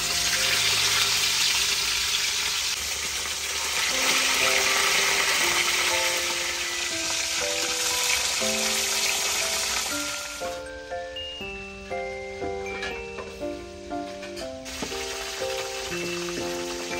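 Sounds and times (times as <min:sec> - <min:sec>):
fish sizzling in oil: 0:00.0 - 0:10.7, 0:14.6 - 0:16.9
light background music: 0:03.8 - 0:16.9.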